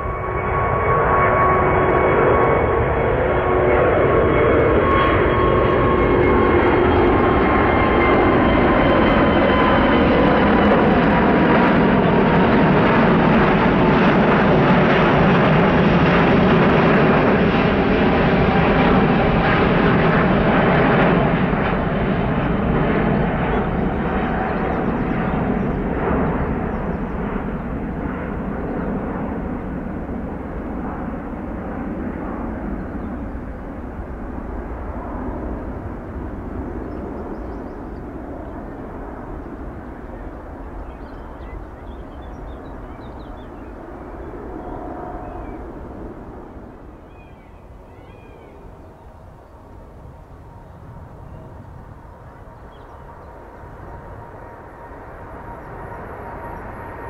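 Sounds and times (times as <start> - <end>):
jet engines roaring at take-off: 0.0 - 57.0.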